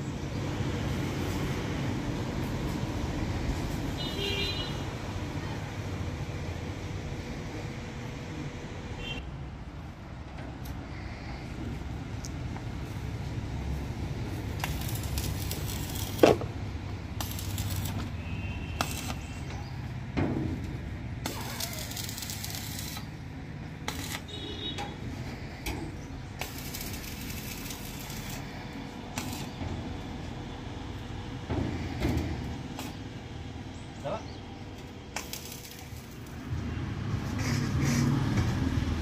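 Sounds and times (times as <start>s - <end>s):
welding arc crackling: 14.3s - 19.5s, 21.2s - 24.8s, 26.3s - 30.1s, 34.8s - 36.6s.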